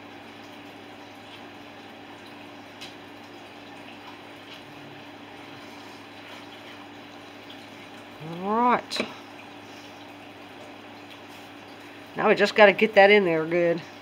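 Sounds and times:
background hum: 0.0 - 14.0.

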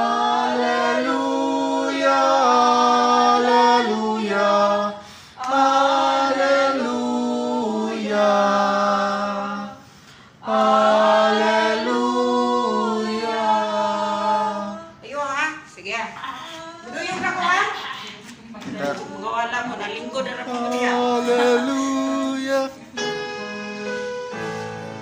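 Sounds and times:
choir singing a cappella: 0.0 - 15.0, 18.6 - 25.0.

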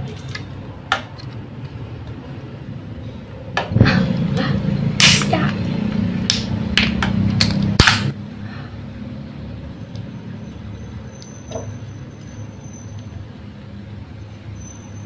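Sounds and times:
can opening crack and hiss: 5.0 - 5.3.

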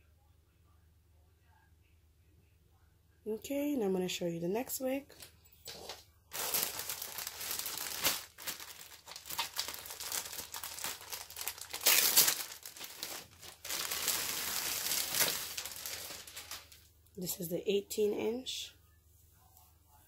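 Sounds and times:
plastic bag crinkling: 5.1 - 16.9.

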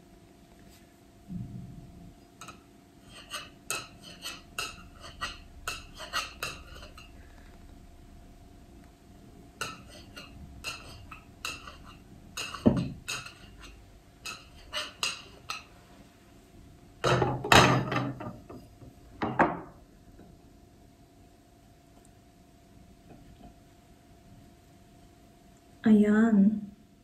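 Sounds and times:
dishes clattering: 2.4 - 7.2, 9.6 - 15.8, 17.0 - 19.8.

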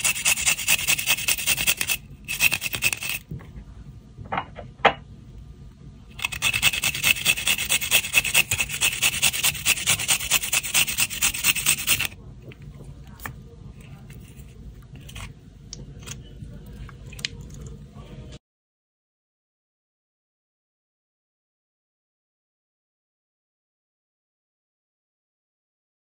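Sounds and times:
garlic grated on metal grater: 0.0 - 3.2, 6.2 - 12.2.

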